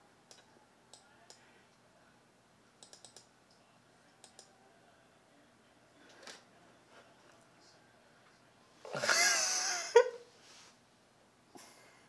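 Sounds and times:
computer mouse clicks: 0.3s - 1.4s, 2.8s - 3.6s, 4.2s - 4.5s.

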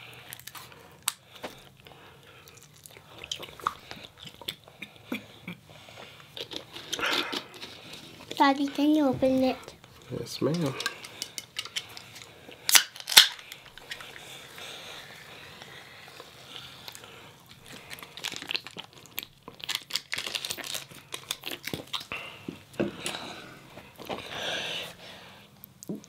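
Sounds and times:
package crinkling and tearing: 0.3s - 1.2s, 12.6s - 14.2s, 16.9s - 22.2s.

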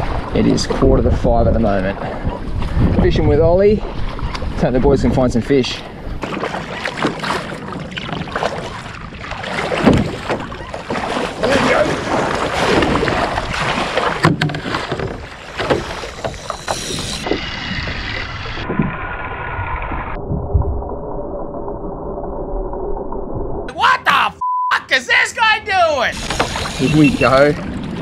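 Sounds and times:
wind on microphone: 0.0s - 6.2s, 7.1s - 16.1s
paddle splashing in water: 5.9s - 20.1s, 26.2s - 28.0s.

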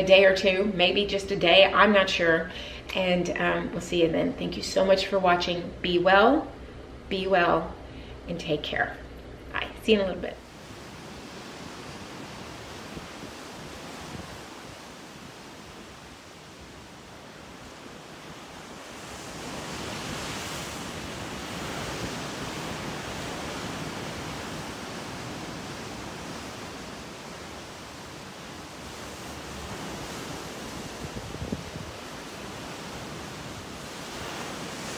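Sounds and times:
wind: 0.0s - 34.9s
ship's wake rushing: 10.4s - 34.9s.

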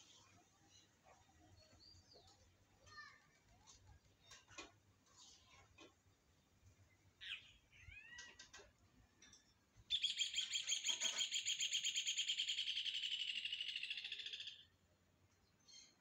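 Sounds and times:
songbird chirping: 6.0s - 16.0s.

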